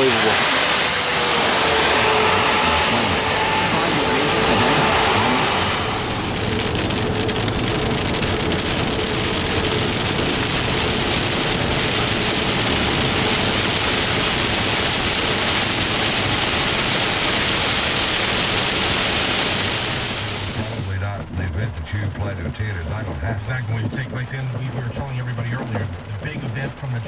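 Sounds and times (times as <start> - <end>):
tyre hiss on wet road: 0.0 - 21.0
heavy rain on car roof: 0.0 - 27.0.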